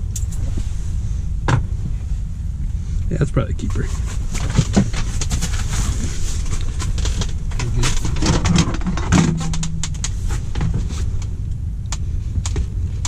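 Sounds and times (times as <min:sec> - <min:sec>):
steady low rumble: 0:00.0 - 0:13.0
fishing gear clicking and rattling: 0:06.4 - 0:11.3.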